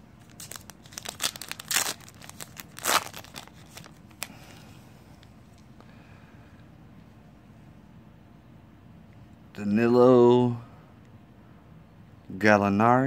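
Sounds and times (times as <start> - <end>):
plastic wrapper crinkling: 0.0 - 4.4.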